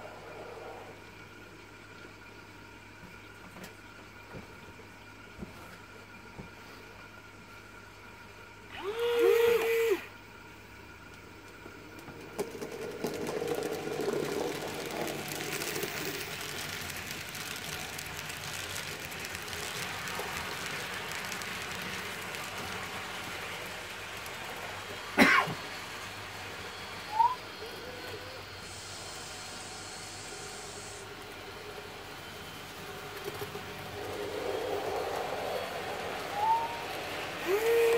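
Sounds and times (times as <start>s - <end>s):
model train rattling on track: 12.2s - 27.3s, 30.3s - 37.8s.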